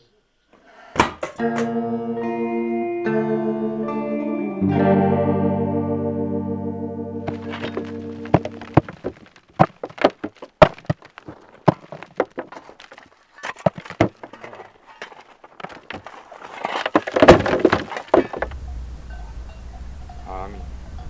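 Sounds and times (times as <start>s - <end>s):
sharp knocks and thuds: 7.3s - 18.6s.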